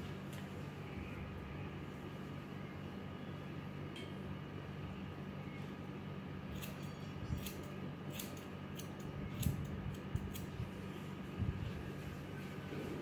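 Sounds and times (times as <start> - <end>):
steady low hum: 0.0 - 13.0
scissors snipping hair: 6.5 - 10.6.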